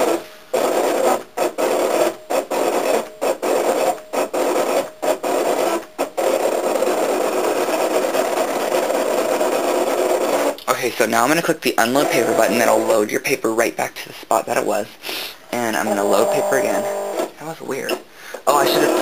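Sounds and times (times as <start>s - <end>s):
die-cutting machine motors: 11.8s - 12.7s, 15.6s - 17.3s.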